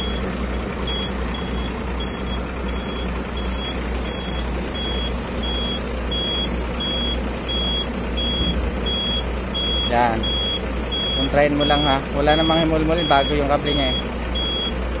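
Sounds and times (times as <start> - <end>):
crane winch engine drone: 0.0 - 15.0
short high warning beeps: 0.9 - 14.8.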